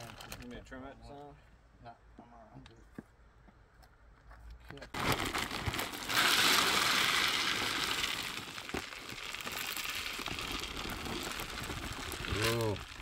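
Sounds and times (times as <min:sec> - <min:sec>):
chips rattling down from a bag: 0:00.0 - 0:00.5, 0:04.9 - 0:13.0.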